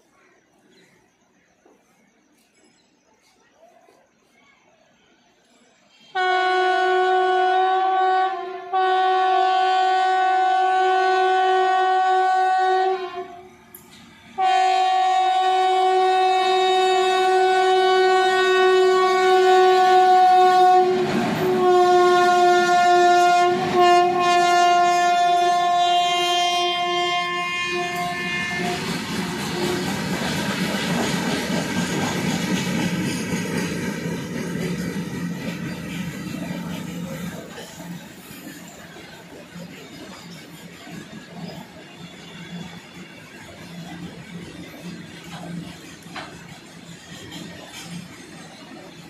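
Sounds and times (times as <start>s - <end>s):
locomotive horn blasts: 6.1s - 13.5s, 14.4s - 29.9s.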